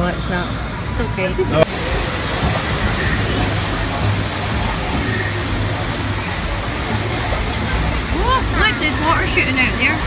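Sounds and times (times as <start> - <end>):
rushing outdoor noise: 0.0 - 10.0.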